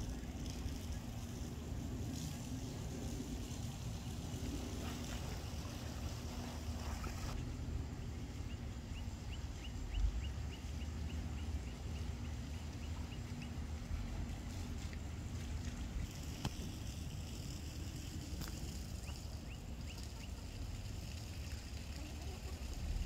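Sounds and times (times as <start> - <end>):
low steady rumble: 0.0 - 23.0
bird chirping: 8.0 - 13.8.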